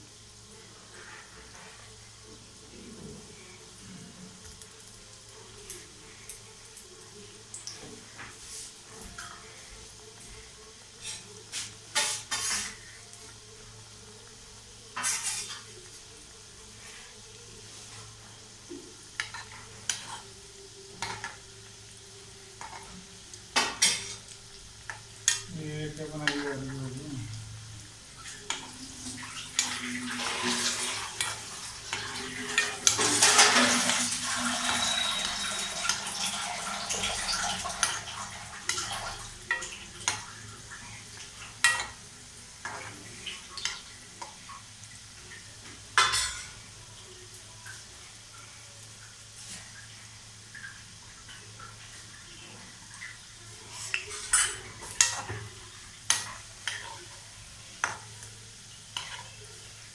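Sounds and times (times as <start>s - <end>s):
food sizzling in oil: 0.0s - 59.9s
metal spoon scraping pan: 11.0s - 12.8s, 29.5s - 36.1s, 59.0s - 59.4s.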